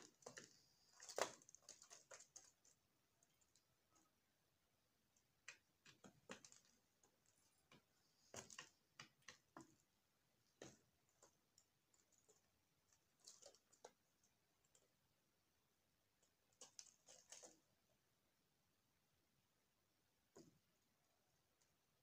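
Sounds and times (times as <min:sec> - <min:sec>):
doves pecking at seed: 0:00.0 - 0:04.2, 0:05.1 - 0:15.1, 0:16.2 - 0:17.8.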